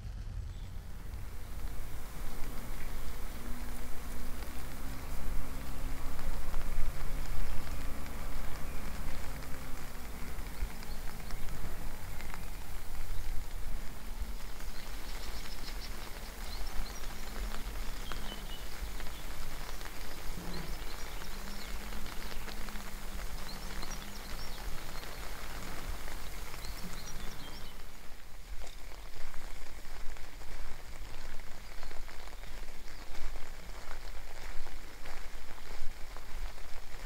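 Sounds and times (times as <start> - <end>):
steady low rumble: 0.0 - 28.2
songbirds chirping and singing: 0.4 - 28.0.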